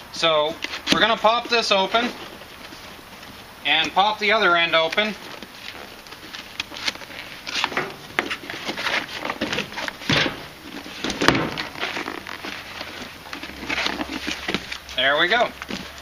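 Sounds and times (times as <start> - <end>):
box and paper rustling: 0.5 - 16.0
cardboard box flaps popping: 7.6 - 12.7.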